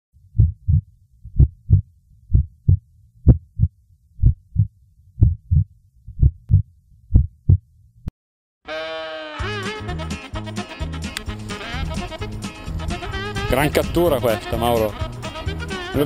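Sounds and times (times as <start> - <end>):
heartbeat thumps: 0.3 - 7.6.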